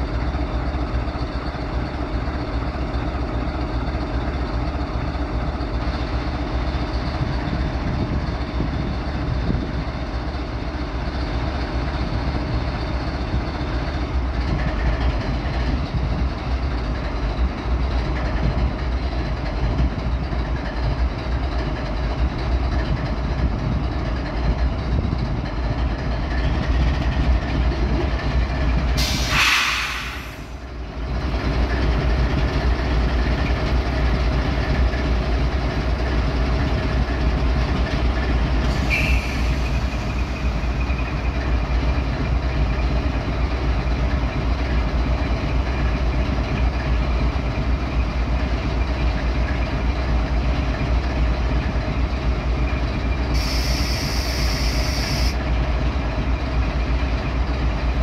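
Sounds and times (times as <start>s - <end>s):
locomotive engine idling: 0.0s - 58.0s
loud air hiss: 29.0s - 30.6s, 38.7s - 40.6s, 53.3s - 55.4s.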